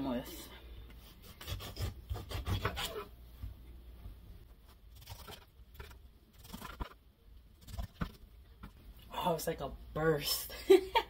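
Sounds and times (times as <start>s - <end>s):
knife cutting oranges: 1.2s - 3.1s.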